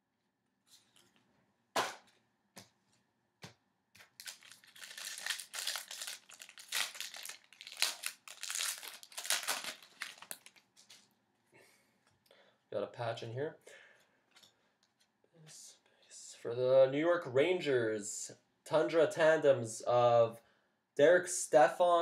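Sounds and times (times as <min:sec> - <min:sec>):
wrapper crinkling and tearing: 0:04.0 - 0:11.1.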